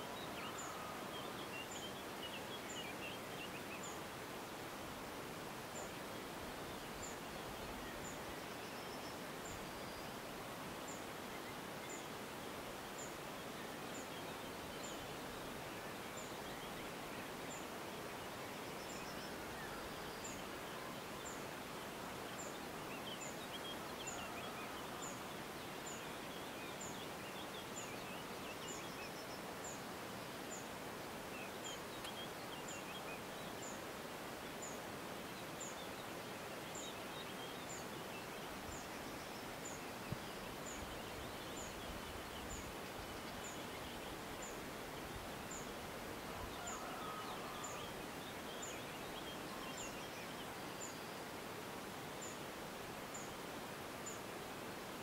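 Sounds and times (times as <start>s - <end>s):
steady background hiss: 0.0s - 55.0s
faint click: 31.9s - 32.2s.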